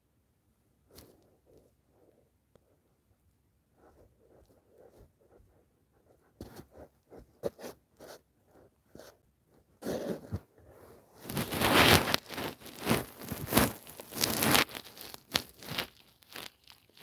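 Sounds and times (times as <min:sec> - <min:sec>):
crinkly rustling and scraping: 0:03.8 - 0:17.0.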